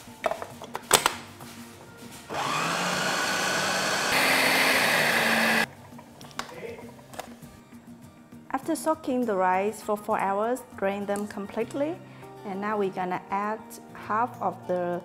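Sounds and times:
food processor motor grinding: 2.3s - 5.7s.

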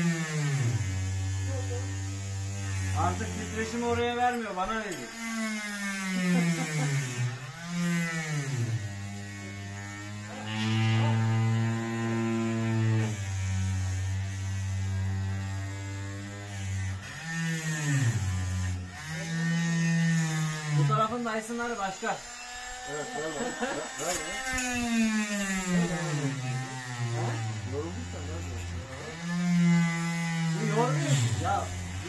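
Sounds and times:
heat gun motor hum: 0.0s - 32.0s.

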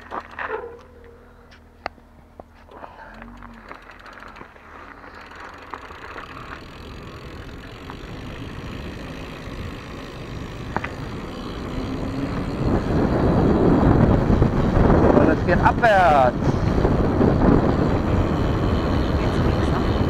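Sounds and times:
bike tyre rumble on asphalt: 0.0s - 20.0s
small clicks: 3.0s - 8.1s, 10.6s - 11.6s
wind buffeting microphone: 5.8s - 20.0s.

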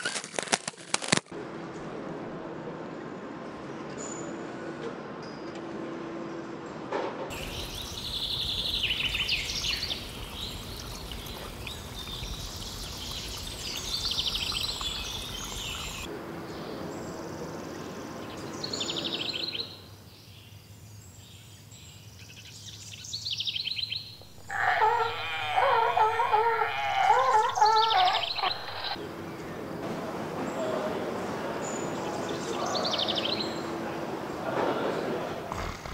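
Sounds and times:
steady background noise: 1.4s - 21.2s, 24.0s - 35.9s
birds chirping: 7.3s - 16.9s, 23.9s - 29.5s.

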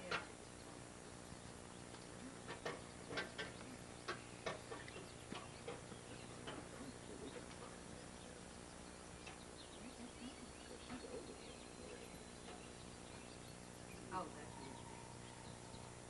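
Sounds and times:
faint high bird chirps: 8.0s - 16.0s.

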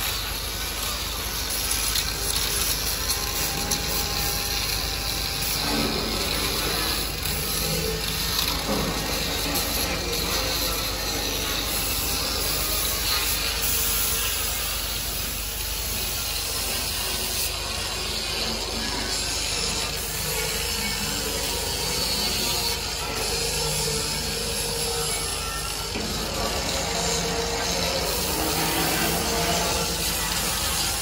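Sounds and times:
compressed air hissing from spray gun: 11.6s - 16.6s, 28.0s - 31.0s.

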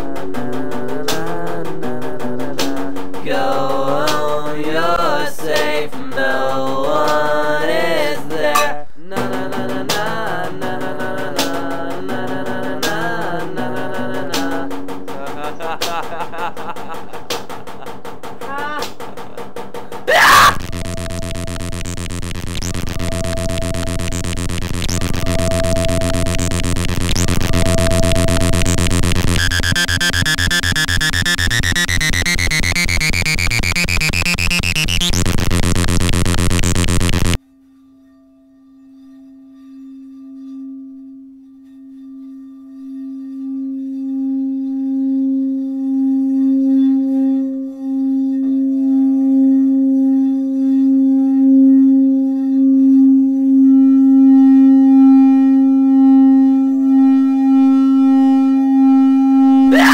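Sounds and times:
synthesized buzz with rising tone: 20.4s - 37.4s
higher steady tones: 20.5s - 37.4s
steady low sine tone: 20.6s - 37.4s.

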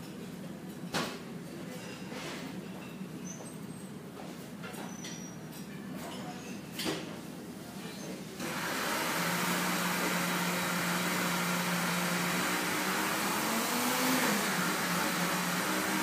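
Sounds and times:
appliance hissing and humming: 8.4s - 16.0s.

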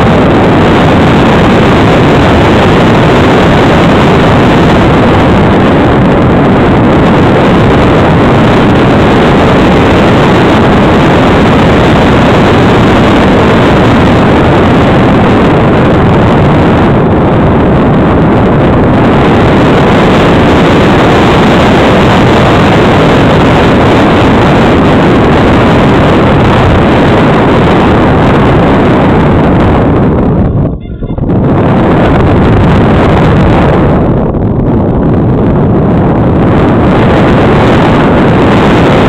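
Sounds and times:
air rushing over camera: 0.0s - 39.0s.

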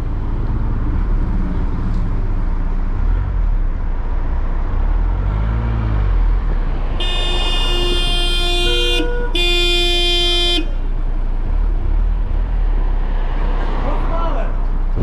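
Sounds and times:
cars driving past: 0.0s - 15.0s
car horn sounding: 7.0s - 10.9s.

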